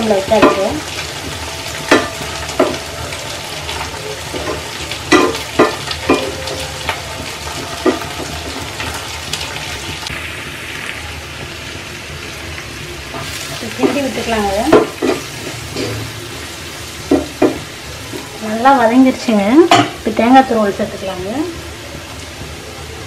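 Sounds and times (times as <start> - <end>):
vegetables sizzling in oil: 0.0 - 23.0
wooden spatula stirring in pan: 0.2 - 10.6.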